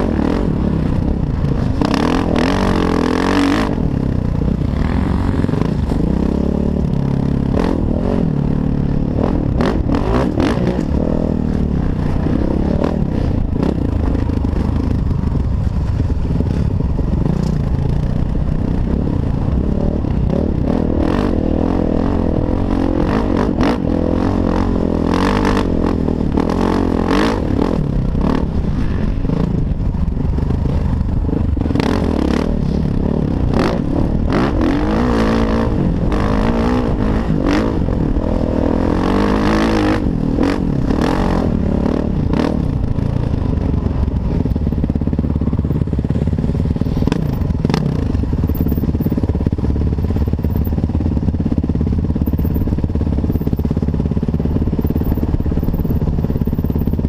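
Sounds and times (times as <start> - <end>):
dirt bike engine revving: 0.0 - 14.6, 31.7 - 42.7.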